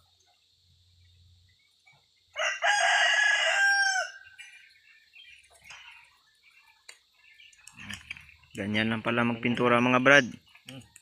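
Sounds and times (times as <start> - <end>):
rooster crowing: 2.3 - 4.4.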